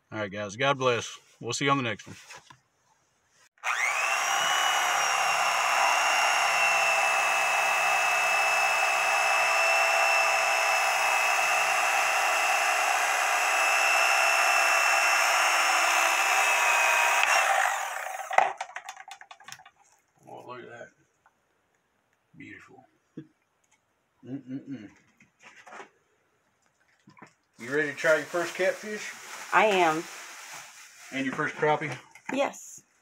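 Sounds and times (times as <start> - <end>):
electric knife motor whine: 3.6 - 18.5.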